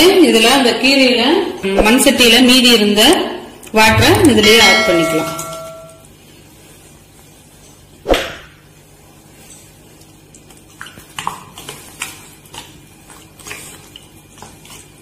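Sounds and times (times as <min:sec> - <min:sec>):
sharp metal knock: 0:03.9 - 0:06.0.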